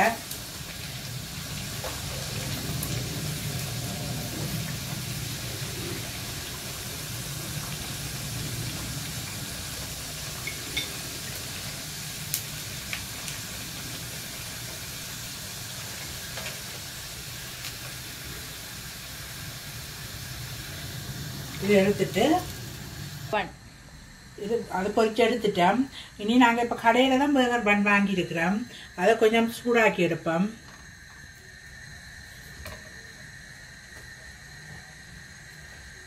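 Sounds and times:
food sizzling in hot oil: 0.0s - 25.8s, 26.4s - 36.0s.

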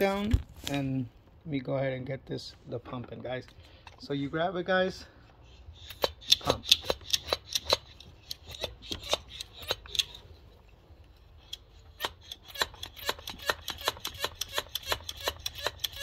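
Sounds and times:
hand pump clicking: 5.8s - 10.2s, 11.4s - 16.0s.

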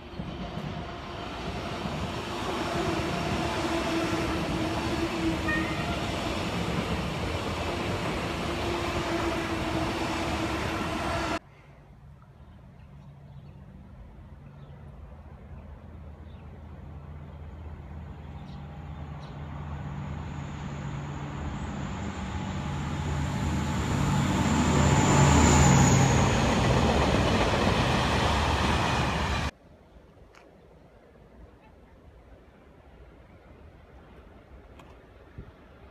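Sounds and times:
diesel locomotive passing: 0.0s - 11.4s, 13.7s - 29.5s.

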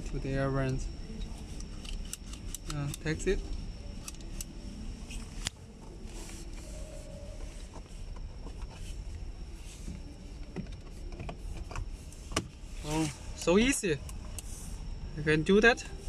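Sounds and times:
faint handling noises: 0.0s - 15.0s
low steady hum: 0.0s - 16.0s.

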